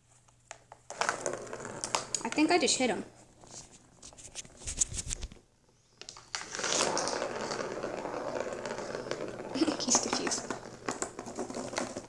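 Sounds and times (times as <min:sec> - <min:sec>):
ball rattling round plastic track: 0:00.8 - 0:02.8, 0:06.2 - 0:12.0.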